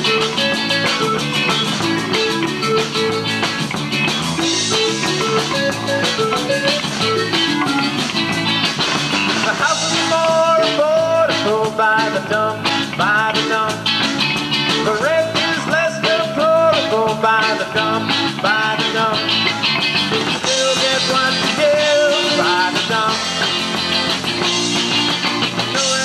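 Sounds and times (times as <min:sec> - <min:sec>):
bending sliding melody line: 0:00.0 - 0:08.7
live rock band playing: 0:00.0 - 0:26.0.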